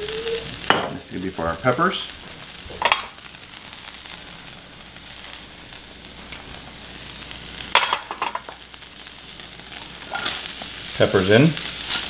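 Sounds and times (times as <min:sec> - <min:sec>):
oil sizzling in a skillet: 0:00.0 - 0:12.0
pan knocking on burner grate: 0:02.8 - 0:03.1, 0:07.7 - 0:08.5.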